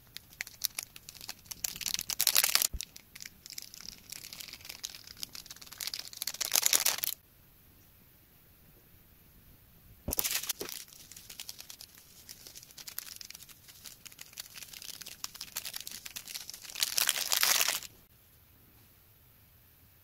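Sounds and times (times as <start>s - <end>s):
fingers crackling crunchy slime: 0.0s - 7.2s, 10.1s - 17.9s.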